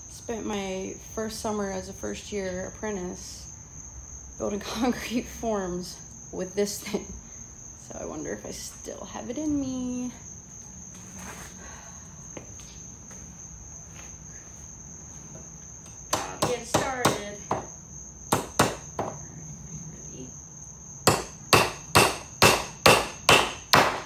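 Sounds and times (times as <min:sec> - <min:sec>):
high-pitched insect drone: 0:05.2 - 0:23.7
hammer striking nails into wood: 0:16.1 - 0:17.7, 0:18.3 - 0:19.2, 0:21.1 - 0:24.0.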